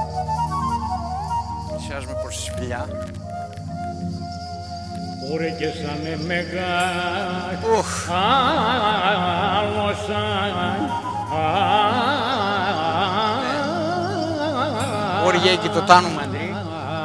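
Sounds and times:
steady held accompaniment: 0.0s - 17.0s
man singing folk song: 5.4s - 17.0s.

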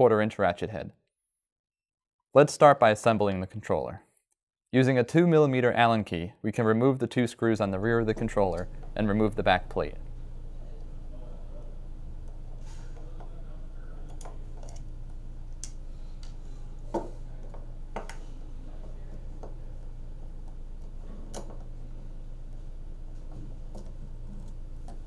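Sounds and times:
steady low hum: 7.4s - 25.0s.

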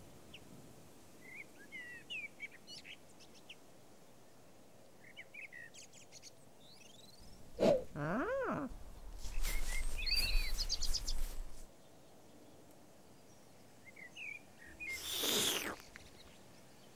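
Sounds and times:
birds chirping: 6.7s - 11.7s.

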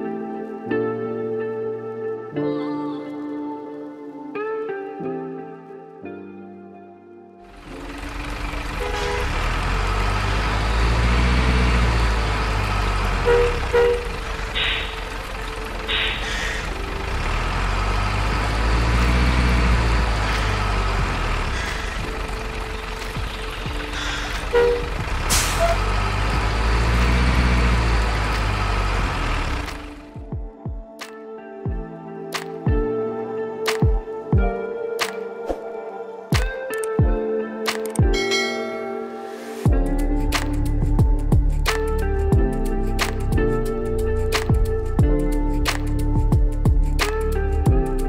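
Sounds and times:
simulated truck engine running: 7.5s - 30.3s
air-brake hiss: 25.3s - 25.8s.

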